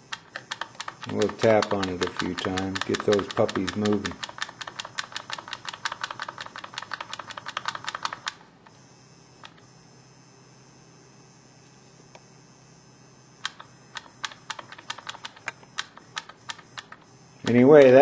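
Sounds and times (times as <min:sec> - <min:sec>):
powder trickler ticking: 0:01.0 - 0:04.2.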